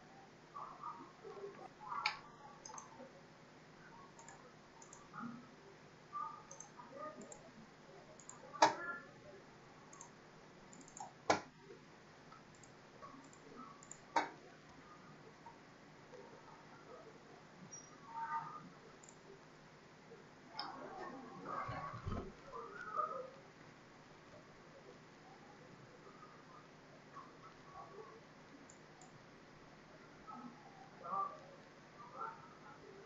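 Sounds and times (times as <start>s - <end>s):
computer mouse clicks: 1.5s - 3.0s, 4.1s - 5.1s, 6.5s - 7.5s, 8.2s - 8.8s, 9.9s - 11.5s, 12.3s - 14.4s, 19.0s - 19.2s, 21.6s - 22.4s, 28.7s - 29.2s
faint small ticks: 4.2s - 5.0s, 6.5s - 7.5s, 12.3s - 14.3s.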